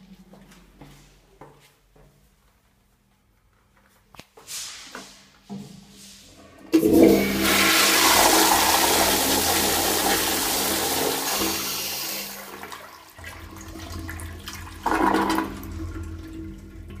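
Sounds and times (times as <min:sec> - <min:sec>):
toilet flushing: 0:06.4 - 0:17.0
toilet tank refilling: 0:06.6 - 0:17.0.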